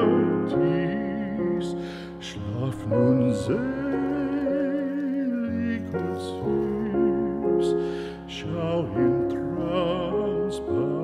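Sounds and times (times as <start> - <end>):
slow background music: 0.0 - 11.0.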